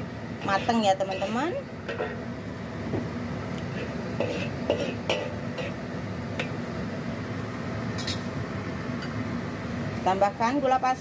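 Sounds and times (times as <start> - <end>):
spatula scraping wok: 0.4 - 2.3, 3.7 - 5.8.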